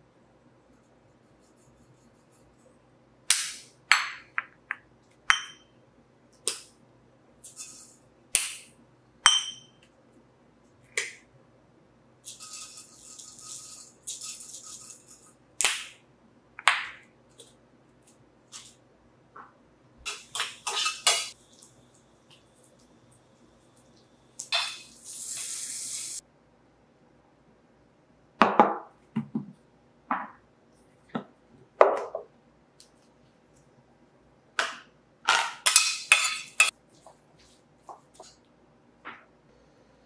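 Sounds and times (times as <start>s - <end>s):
glass jars clinking: 5.3s - 5.6s, 9.3s - 9.8s, 20.1s - 21.4s.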